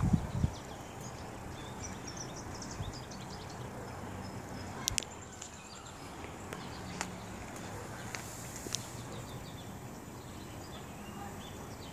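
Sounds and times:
low outdoor background hum: 0.0 - 11.9
small birds chirping: 0.0 - 11.9.

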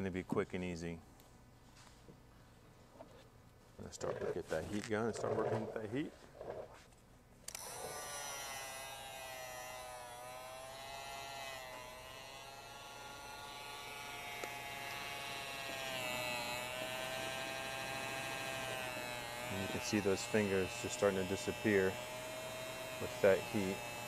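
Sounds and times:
heat gun fan motor whine: 7.5 - 24.0.

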